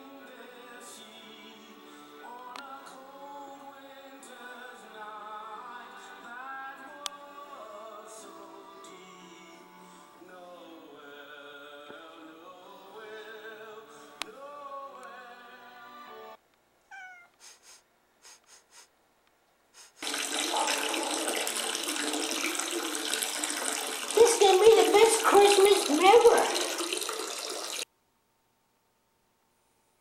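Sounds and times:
music with singing: 0:00.0 - 0:16.4, 0:23.4 - 0:26.6
water running loudly: 0:20.0 - 0:27.8.

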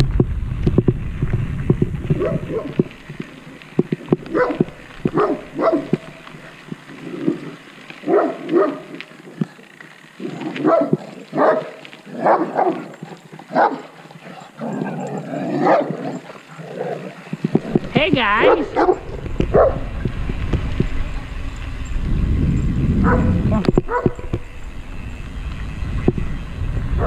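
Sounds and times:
dog barking: 0:02.2 - 0:02.8, 0:04.3 - 0:06.0, 0:08.0 - 0:08.9, 0:10.6 - 0:12.9, 0:13.5 - 0:13.9, 0:15.5 - 0:17.0, 0:18.4 - 0:19.9, 0:23.0 - 0:24.3.

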